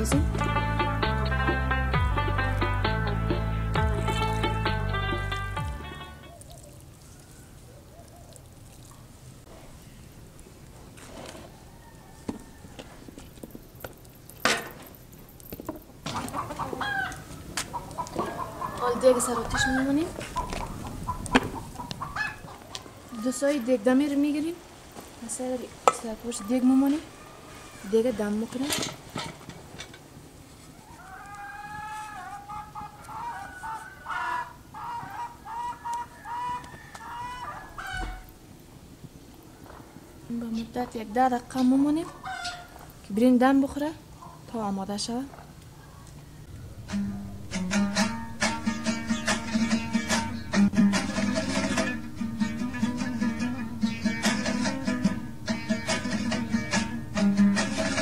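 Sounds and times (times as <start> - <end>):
chickens calling: 3.3 - 9.2, 15.4 - 23.9, 26.0 - 28.6, 30.3 - 38.4, 39.2 - 43.0, 44.0 - 44.7, 45.3 - 58.0
hen clucking: 16.0 - 23.8, 30.7 - 38.3, 41.6 - 42.9, 45.8 - 58.0.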